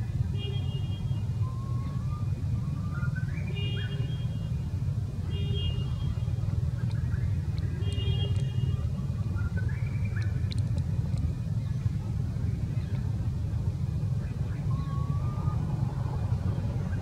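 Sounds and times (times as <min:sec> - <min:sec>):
steady low rumble: 0:04.1 - 0:17.0.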